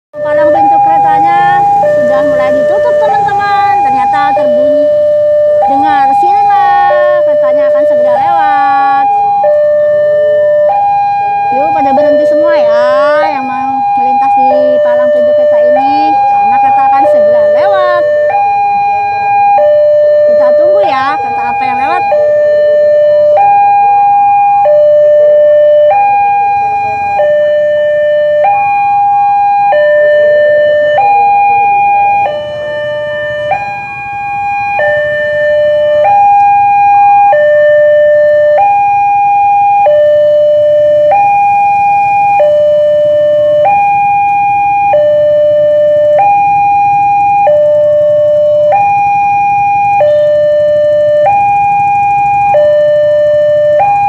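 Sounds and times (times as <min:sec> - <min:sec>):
two-tone crossing alarm: 0:00.2 - 0:54.0.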